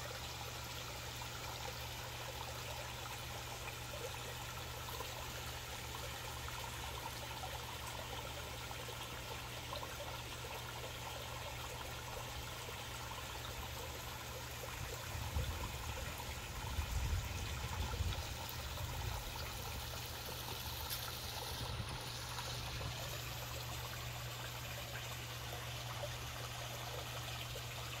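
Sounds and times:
waterfall trickling into pond: 0.0 - 28.0.

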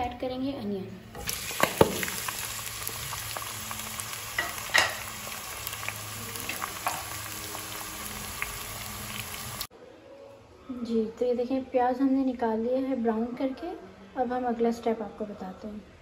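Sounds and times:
onions sizzling in hot oil: 1.2 - 9.7.

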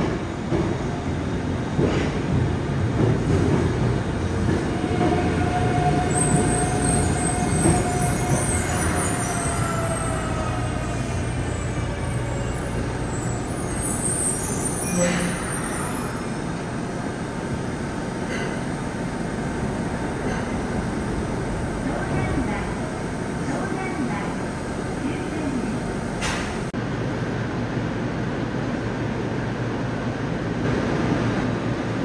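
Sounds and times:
train rumble: 0.0 - 32.0
electric train whine: 3.5 - 27.6.

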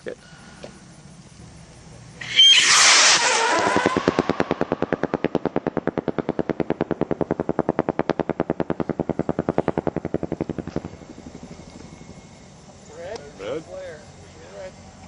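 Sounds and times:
rocket motor rapid popping: 2.2 - 12.3.

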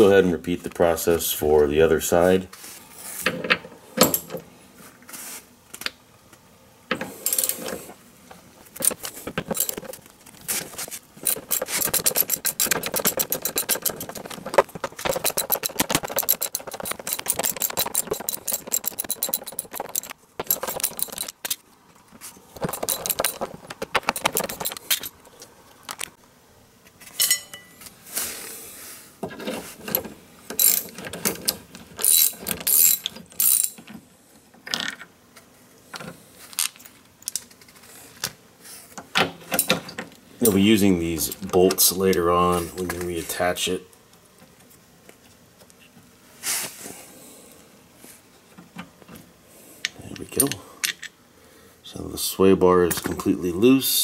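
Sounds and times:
ratchet wrench clicking: 11.2 - 14.4, 15.0 - 21.6, 22.6 - 25.1, 32.0 - 33.8.

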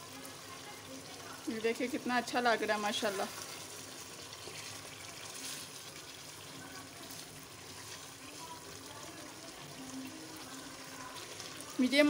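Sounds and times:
food sizzling in oil: 0.0 - 12.0
wooden spatula stirring: 2.7 - 8.7.

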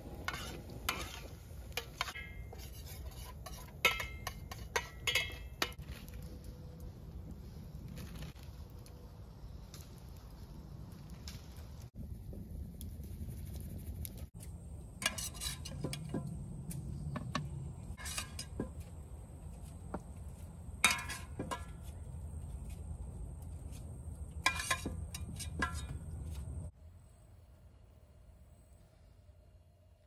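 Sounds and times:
metal utensils clinking on pan: 0.3 - 5.8, 15.0 - 16.3, 17.1 - 18.9, 20.8 - 22.0, 24.4 - 26.0.

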